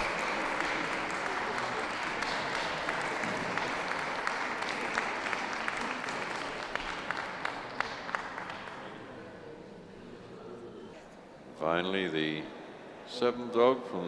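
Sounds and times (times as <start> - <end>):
single claps: 0.0 - 8.8
audience applauding: 0.0 - 9.3.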